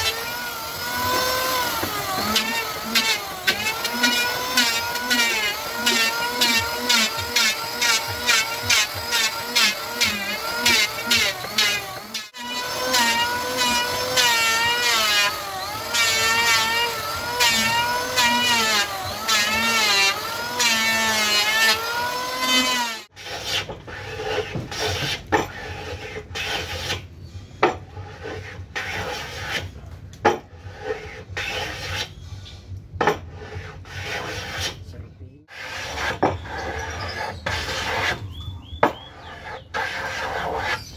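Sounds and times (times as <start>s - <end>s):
electric planer whining: 0.0s - 23.1s
hand plane strokes on wood: 0.0s - 27.0s, 33.3s - 34.9s, 35.5s - 38.2s, 39.2s - 40.9s.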